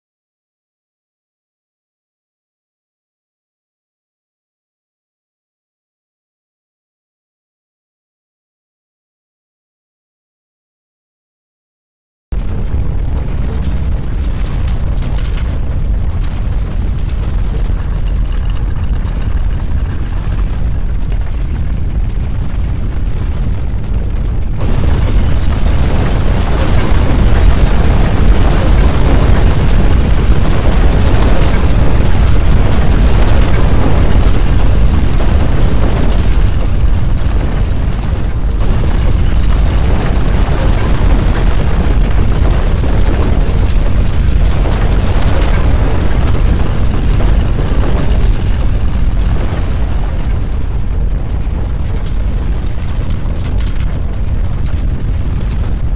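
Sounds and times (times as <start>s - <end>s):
earthquake deep rumbling: 12.3s - 55.9s
crackling and rattling: 12.4s - 55.9s.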